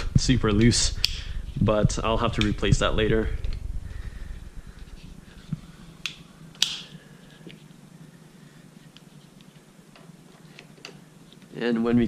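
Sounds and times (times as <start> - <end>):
metallic clamp snap: 6.0 - 7.0.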